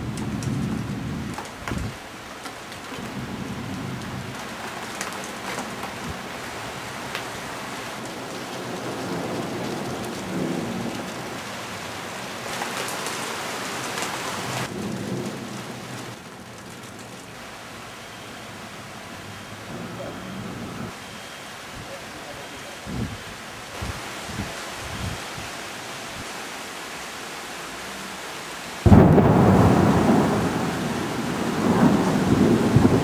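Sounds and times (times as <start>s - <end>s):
steady rain hiss: 0.0s - 33.0s
thunder rumbling: 2.8s - 17.1s, 28.8s - 33.0s.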